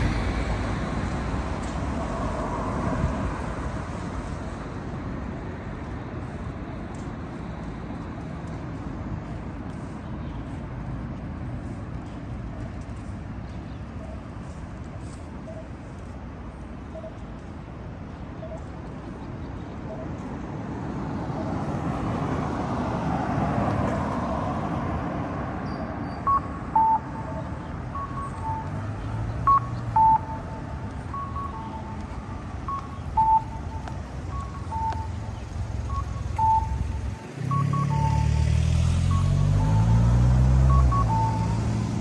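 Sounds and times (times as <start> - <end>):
heavy vehicle engine: 0.0 - 13.2, 26.2 - 42.0
street traffic: 0.0 - 42.0.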